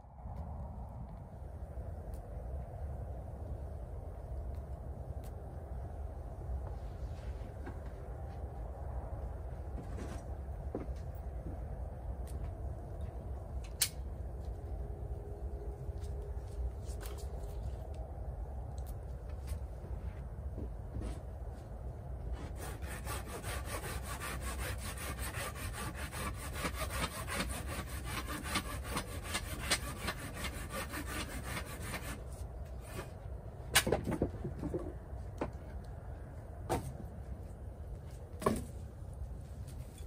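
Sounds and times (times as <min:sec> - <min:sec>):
hand saw cutting wood: 0:22.3 - 0:33.1.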